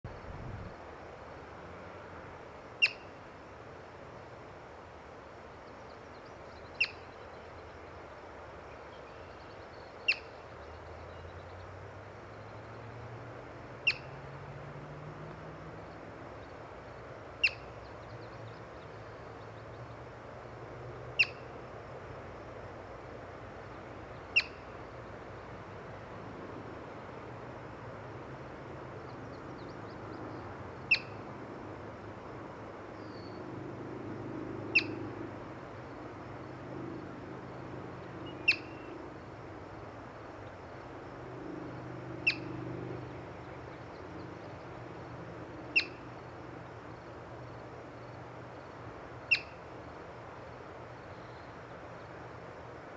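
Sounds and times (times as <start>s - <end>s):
marmot alarm chirps: 21.2s - 21.4s, 24.3s - 24.6s, 30.9s - 31.1s, 34.7s - 35.0s, 38.4s - 38.8s, 42.2s - 42.5s, 45.7s - 46.0s, 49.3s - 49.6s.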